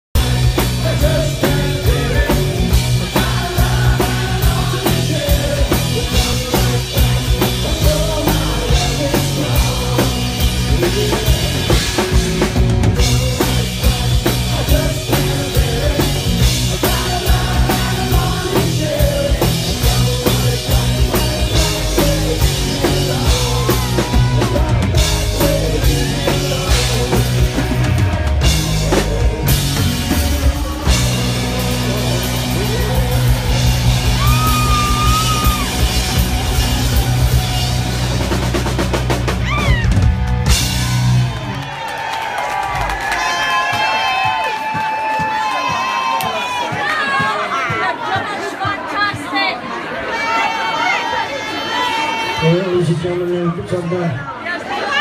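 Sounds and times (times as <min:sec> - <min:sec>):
man singing into microphone: 0:00.2 - 0:12.1, 0:13.0 - 0:35.7
drum kit beat: 0:00.2 - 0:41.9, 0:42.6 - 0:49.4
live rock band: 0:00.2 - 0:48.4.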